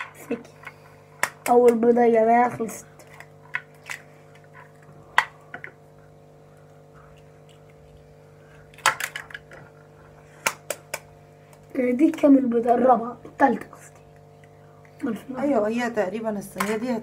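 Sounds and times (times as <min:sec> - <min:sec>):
faint steady hum: 0:00.0 - 0:17.0
eggs cracking on metal bowl: 0:01.2 - 0:02.0, 0:03.0 - 0:05.8, 0:08.6 - 0:12.9.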